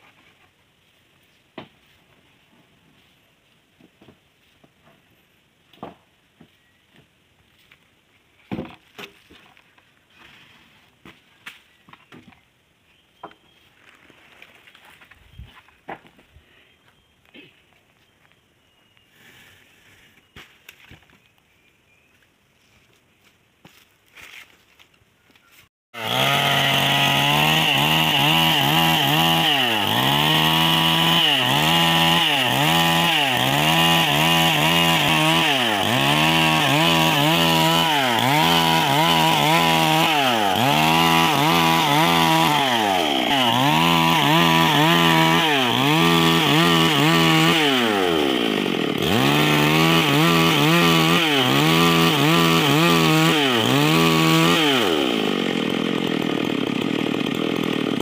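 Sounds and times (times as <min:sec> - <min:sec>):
chainsaw cutting a log: 0:26.0 - 0:58.0.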